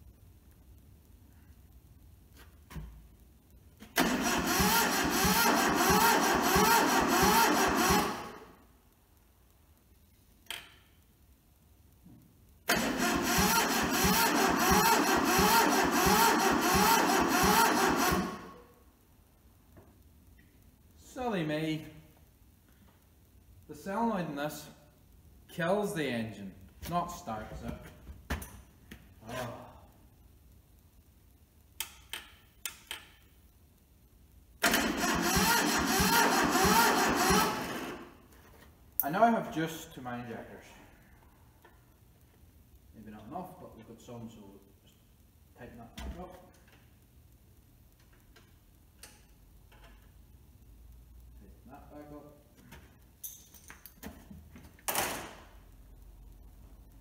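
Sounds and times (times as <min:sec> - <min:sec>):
diesel engine cranking: 0:04.0 - 0:08.4, 0:12.7 - 0:18.5, 0:34.6 - 0:38.1.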